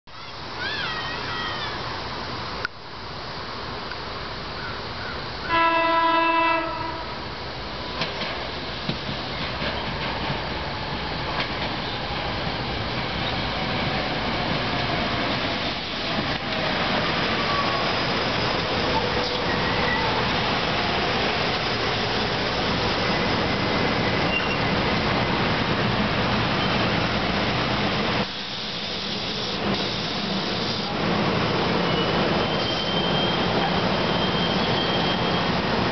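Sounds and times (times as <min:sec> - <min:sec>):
steady hiss: 0:00.2 - 0:35.9
train running noise: 0:00.2 - 0:35.9
train horn blast: 0:05.5 - 0:07.2.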